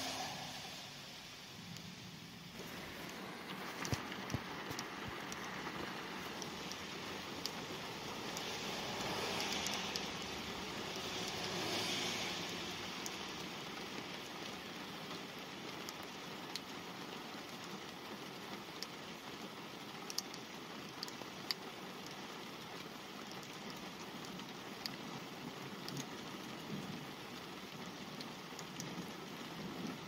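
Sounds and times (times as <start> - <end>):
single raindrops: 0.0 - 16.7
light rain pattering on car: 0.0 - 30.0
tyre hiss on wet road: 0.0 - 30.0.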